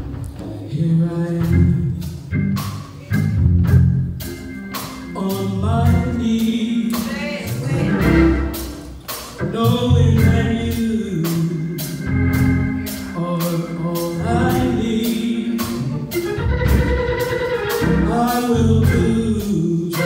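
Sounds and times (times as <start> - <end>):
band with drums and keyboard: 0.0 - 20.0
woman singing through microphone: 6.8 - 8.1.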